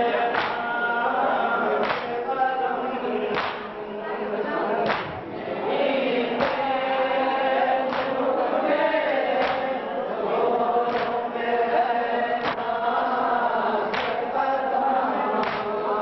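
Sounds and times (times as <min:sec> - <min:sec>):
men chanting in unison: 0:00.0 - 0:16.0
hands slapping chests: 0:00.3 - 0:00.8, 0:01.8 - 0:02.2, 0:03.3 - 0:03.8, 0:04.8 - 0:05.3, 0:06.4 - 0:06.8, 0:07.8 - 0:08.3, 0:09.3 - 0:09.8, 0:10.9 - 0:11.3, 0:12.4 - 0:12.7, 0:13.9 - 0:14.3, 0:15.4 - 0:15.8.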